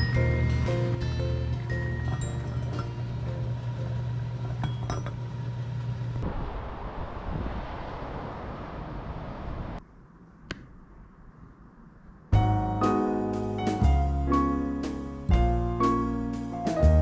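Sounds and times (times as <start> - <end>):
background music with steady tones: 0.0 - 4.5, 12.4 - 17.0
outdoor rushing noise: 6.1 - 12.4.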